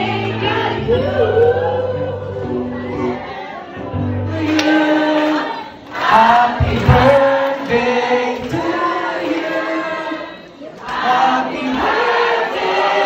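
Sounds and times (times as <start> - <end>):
man singing through speakers: 4.2 - 10.3.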